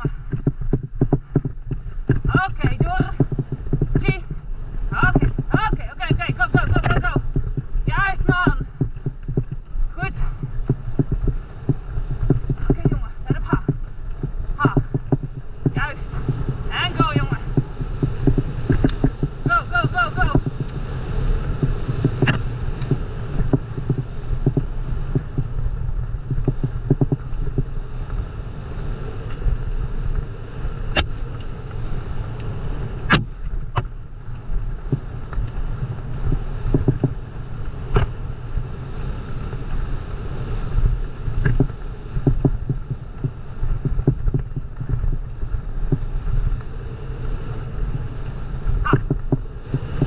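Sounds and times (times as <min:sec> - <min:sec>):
knocks and rattles: 0:00.0 - 0:20.8, 0:21.5 - 0:25.6, 0:26.2 - 0:27.7
bike rumbling over rough trail: 0:00.0 - 0:50.0
sharp clicks: 0:10.4 - 0:20.8, 0:21.6 - 0:25.5.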